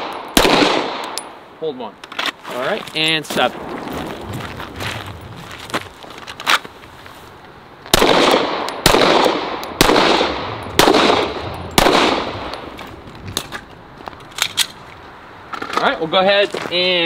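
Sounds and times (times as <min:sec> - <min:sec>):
pistol shots: 0:00.0 - 0:01.2, 0:07.9 - 0:12.7.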